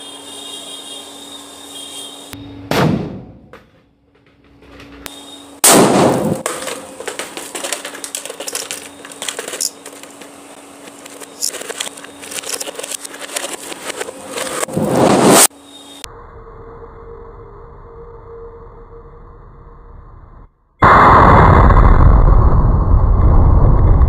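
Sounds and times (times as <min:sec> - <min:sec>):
firecracker bangs: 0:05.6 - 0:07.2.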